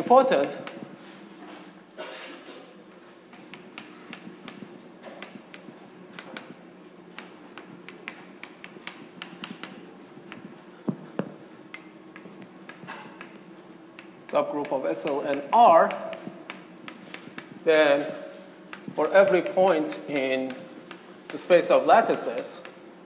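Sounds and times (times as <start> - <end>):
chalk tapping on blackboard: 0.0 - 1.0, 3.3 - 6.6, 7.2 - 22.8
low room hum: 0.0 - 23.0.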